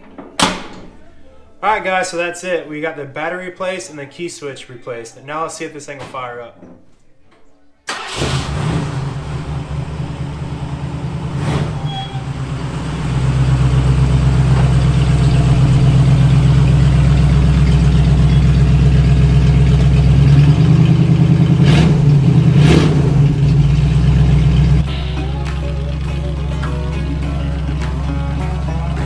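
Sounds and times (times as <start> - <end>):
truck engine rumbling: 7.9 - 29.0.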